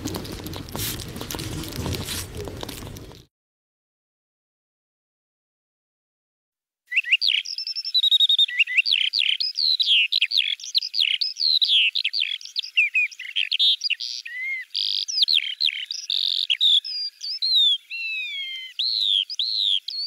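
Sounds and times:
songbirds chirping and whistling: 6.9 - 20.0.

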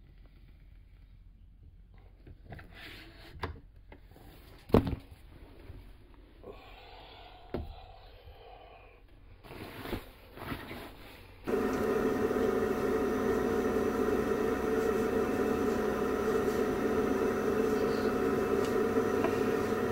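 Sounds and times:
fan-like machine hum: 11.4 - 19.9.

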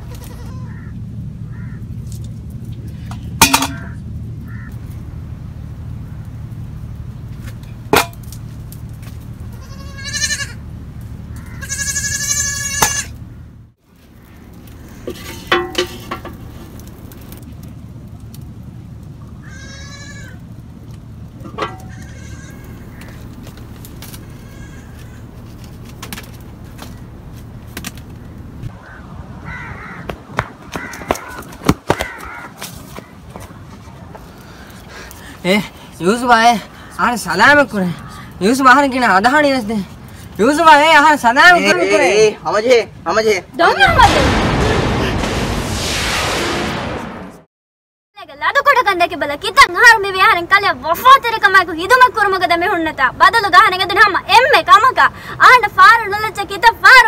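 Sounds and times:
wavering bleat-like cries: 0.0 - 1.0, 9.5 - 10.6, 11.4 - 13.2, 21.8 - 22.8, 24.3 - 25.3
crow cawing: 0.6 - 1.9, 3.8 - 4.8, 11.3 - 11.8, 22.0 - 23.2, 28.8 - 33.1, 36.8 - 37.2, 37.9 - 38.3
steady low rumble: 43.6 - 47.5.

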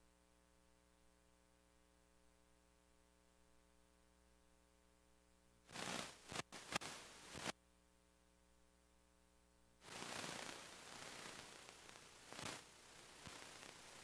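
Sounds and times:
faint steady hum: 0.0 - 14.0
static hiss: 5.6 - 7.6, 9.8 - 14.0
rustling crackling noise: 5.7 - 7.6, 9.8 - 14.0.

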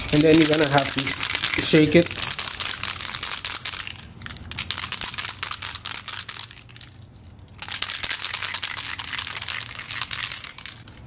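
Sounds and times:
aerosol can ball rattling: 0.0 - 11.0.

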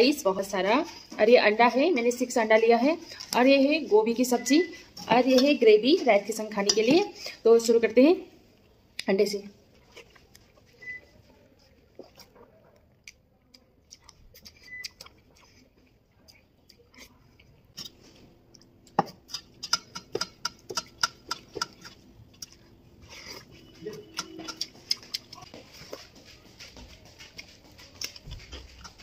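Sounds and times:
eating by hand clicks and smacks: 12.0 - 22.7, 23.4 - 29.0.

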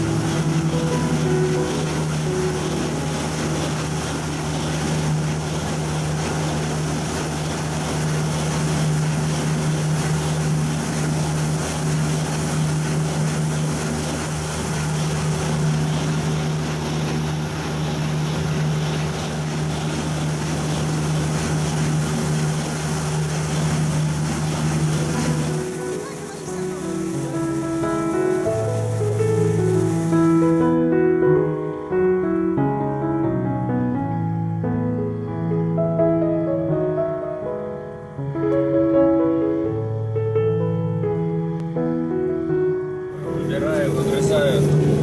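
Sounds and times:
combine harvester droning: 43.1 - 45.0.

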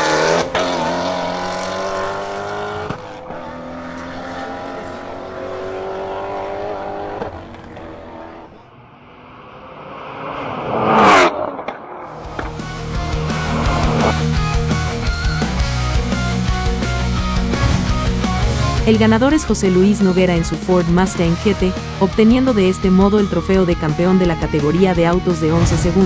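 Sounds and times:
car passing close by: 0.0 - 14.5, 17.4 - 19.3
cars accelerating hard: 0.0 - 26.0.

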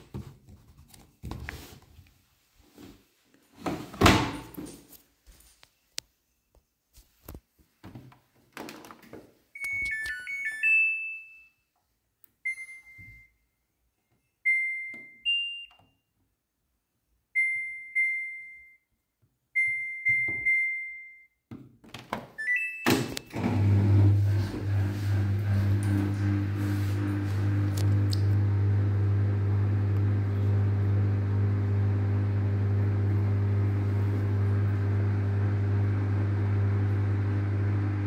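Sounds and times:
washing machine humming: 23.3 - 38.0.

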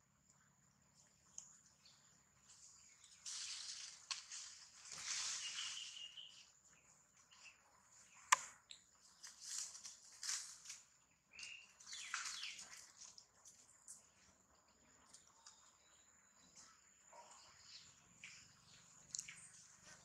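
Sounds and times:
rustling in dry leaves: 2.5 - 6.5, 9.1 - 11.0
sharp click: 8.3 - 8.5.

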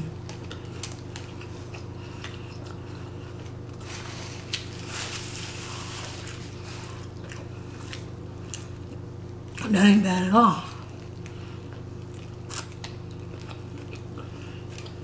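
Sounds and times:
steady low hum: 0.0 - 15.0
person chewing food: 0.1 - 9.6, 10.8 - 15.0
paper napkin rustling: 3.7 - 7.1.

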